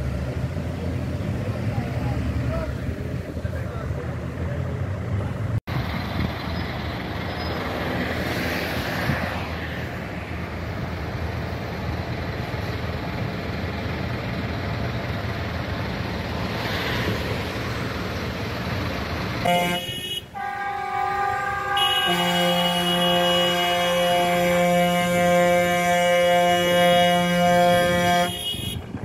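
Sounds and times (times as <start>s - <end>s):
diesel tractor engines idling: 0.0s - 8.2s, 9.5s - 29.0s
broad hiss of passing vehicle: 6.1s - 14.8s, 15.7s - 19.0s.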